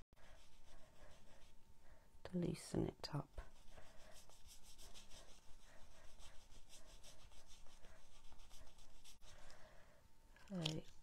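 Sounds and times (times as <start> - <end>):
brush stroking paper: 0.2 - 1.6, 3.0 - 9.5.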